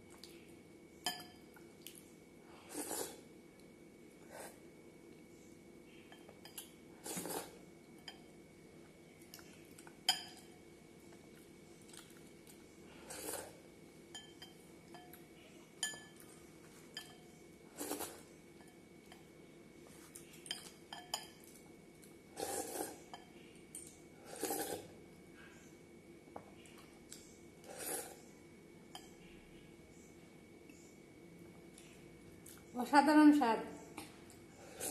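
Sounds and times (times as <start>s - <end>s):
slurping milk: 7.0s - 7.6s, 13.0s - 13.6s, 22.4s - 23.0s, 24.2s - 24.9s
glass bowl clinking: 14.1s - 15.2s, 15.8s - 16.2s.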